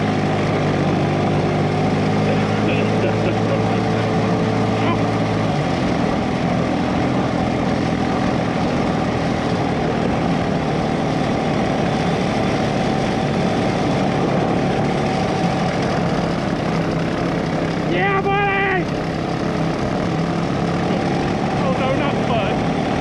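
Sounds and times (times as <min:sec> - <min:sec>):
go kart engines running: 0:00.0 - 0:23.0.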